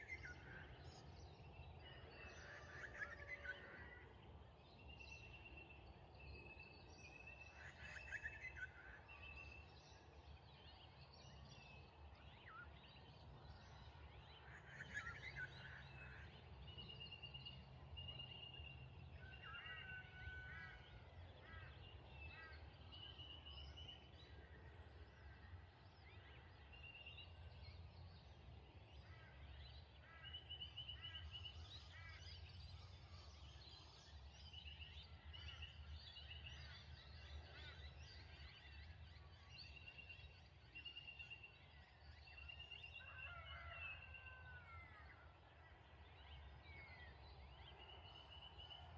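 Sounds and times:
distant bird calls: 0.0s - 10.8s, 11.6s - 48.9s.

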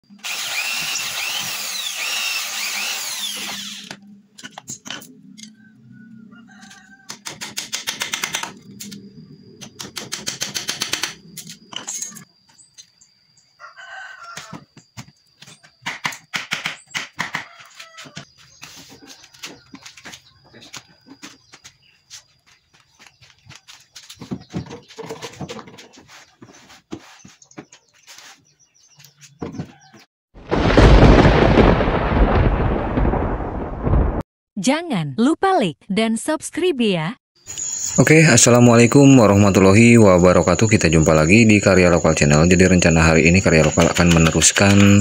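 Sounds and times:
electric drill boring into wood: 0.1s - 4.0s
rooster crowing: 5.4s - 7.3s, 13.6s - 14.8s, 17.3s - 18.2s.

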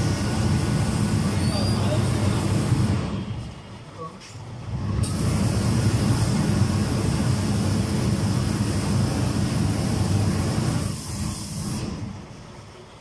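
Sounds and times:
suction blower running: 0.0s - 3.2s, 4.9s - 12.0s
steam iron hissing: 0.0s - 3.3s, 5.0s - 12.2s.

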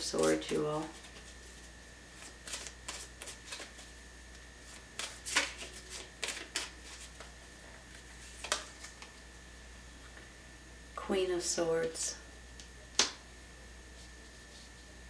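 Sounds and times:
cards shuffling: 0.2s - 3.9s, 4.6s - 7.3s, 7.9s - 9.1s.

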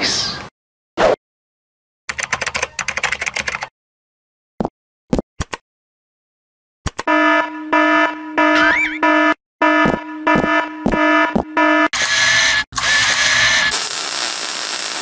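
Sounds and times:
pulsing alarm buzzer: 7.0s - 13.9s.

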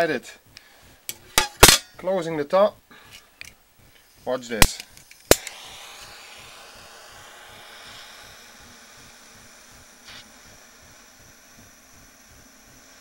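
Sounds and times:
lighter flame hissing: 3.0s - 13.0s.

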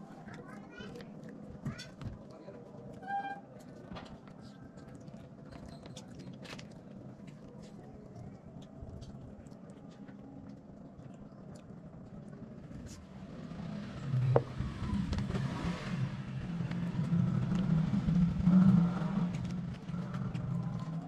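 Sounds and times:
person chewing food: 0.0s - 2.4s, 4.3s - 13.0s
small clicks and crinkles: 0.0s - 13.0s
low background hum: 0.0s - 21.0s.

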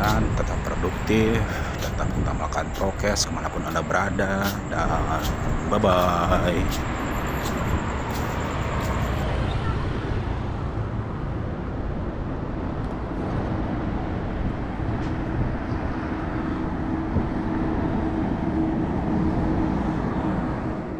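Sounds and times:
low engine hum: 0.0s - 20.9s
road traffic noise: 0.0s - 20.9s.

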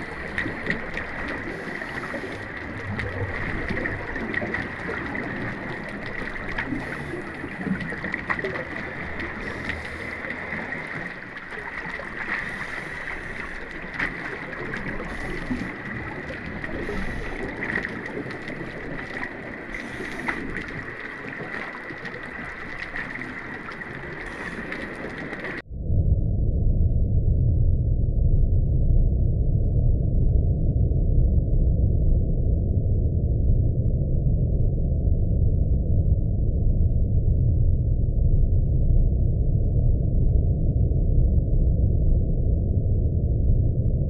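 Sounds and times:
faint clicks: 0.0s - 25.6s
underwater water noise: 0.0s - 25.6s.

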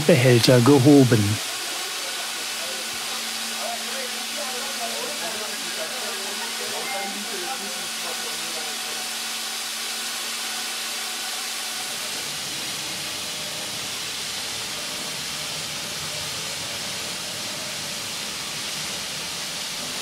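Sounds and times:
faint steady hum: 0.0s - 1.4s
steam hissing: 0.0s - 20.0s.

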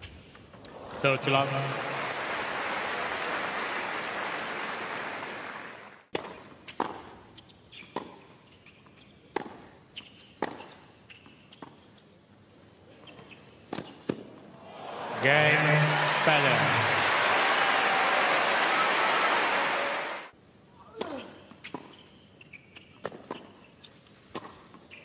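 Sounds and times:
crowd applause: 0.7s - 6.1s, 14.6s - 20.3s
shoe squeaks: 7.4s - 9.2s, 9.9s - 12.1s, 13.0s - 13.7s, 21.4s - 24.1s.

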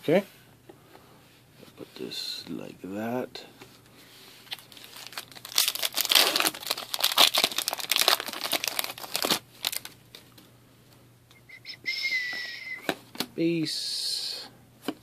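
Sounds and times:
foil wrapper tearing and crinkling: 4.5s - 10.0s.

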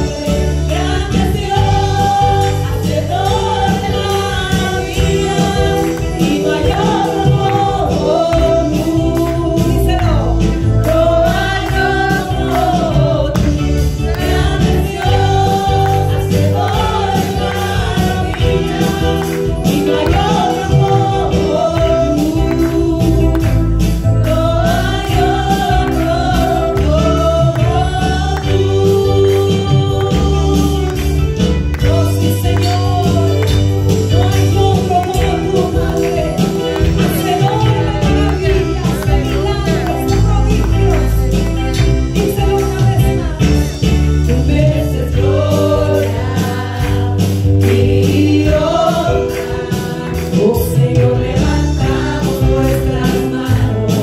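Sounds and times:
band with heavy bass and drums: 0.0s - 54.0s
gospel singers: 0.0s - 54.0s.

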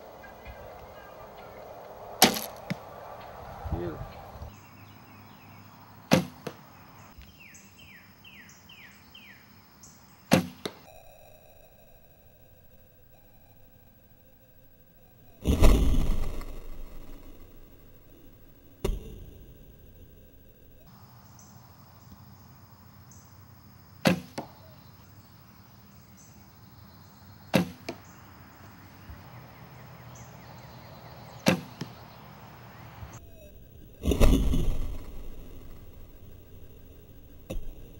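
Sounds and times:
bird chirping: 0.0s - 37.9s
arrow striking target: 2.2s - 4.5s, 6.1s - 6.6s, 10.3s - 10.9s, 15.4s - 17.4s, 24.0s - 24.6s, 27.5s - 28.0s, 31.4s - 32.0s, 34.0s - 35.9s
bowstring slap: 6.1s - 6.6s, 31.5s - 32.0s.

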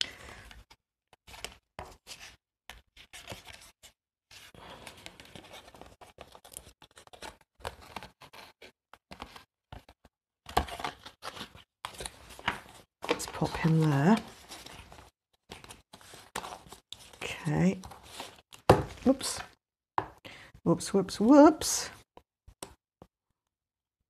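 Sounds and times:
paper and card rustling: 3.0s - 19.5s.

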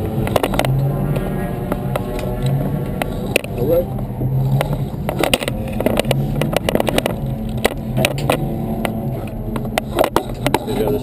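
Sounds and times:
car engine running at low revs: 0.0s - 11.0s
clicks and rattles: 0.2s - 0.8s, 4.6s - 10.9s.

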